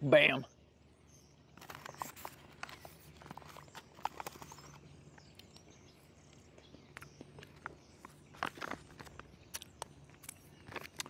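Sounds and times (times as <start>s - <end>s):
foil pouch crinkling: 1.6s - 5.6s, 7.2s - 11.0s.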